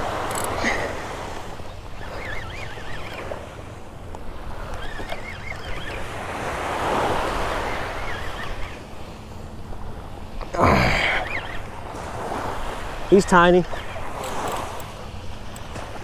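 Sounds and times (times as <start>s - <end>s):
waves washing on sandy beach: 0.0s - 16.0s
fishing reel whining: 0.1s - 6.1s, 7.2s - 9.0s.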